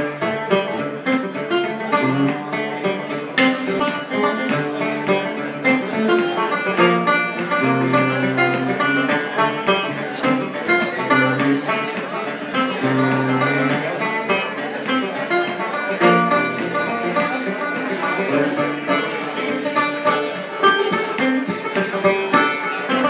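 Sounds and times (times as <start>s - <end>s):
plucked-string notes: 0.0s - 23.0s
steady bass line: 16.0s - 17.3s.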